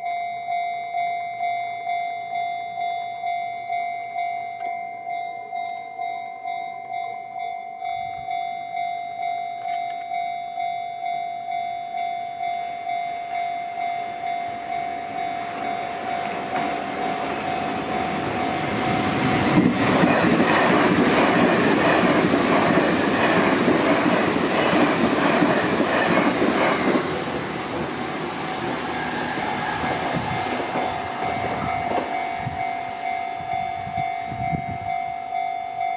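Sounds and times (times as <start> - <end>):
level-crossing warning bell: 0.0 - 35.9
train passing: 6.9 - 35.9.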